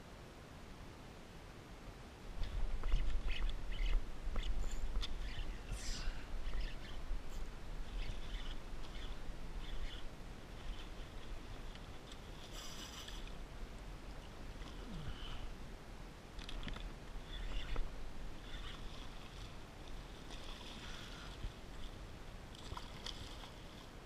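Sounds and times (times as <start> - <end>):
water splashing around kayak: 17.1 - 24.0.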